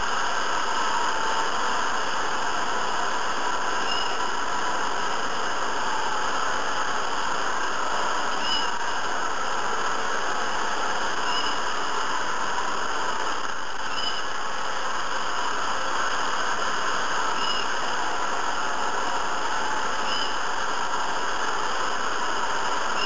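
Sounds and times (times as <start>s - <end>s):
faint high chirp: 8.4s - 8.8s, 11.2s - 11.7s, 13.9s - 14.3s, 17.4s - 17.7s.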